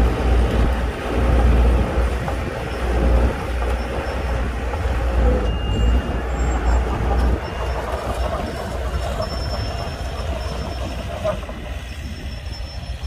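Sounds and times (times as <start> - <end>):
bulldozer diesel engine under load: 0.0 - 13.0
steel tracks clanking: 0.0 - 13.0.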